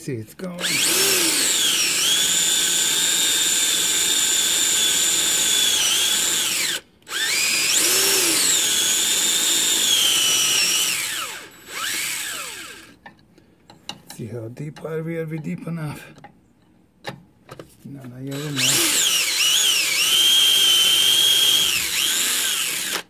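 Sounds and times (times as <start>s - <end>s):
electric drill whining: 0.6s - 13.0s, 18.3s - 23.0s.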